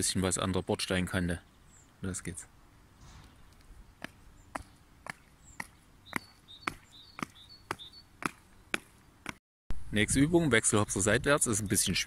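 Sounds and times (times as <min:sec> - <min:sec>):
sneakers slapping on asphalt: 0:03.1 - 0:09.4.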